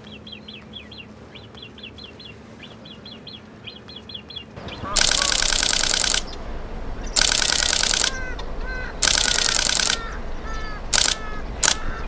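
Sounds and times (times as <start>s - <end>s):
birds calling: 0.0s - 12.0s
camera shutter bursts: 4.8s - 6.4s, 7.1s - 12.0s.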